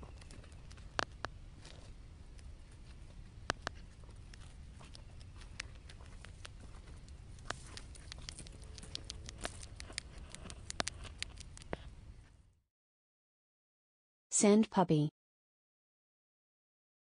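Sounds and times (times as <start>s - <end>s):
mole rat clicking and rustling: 0.0s - 11.9s.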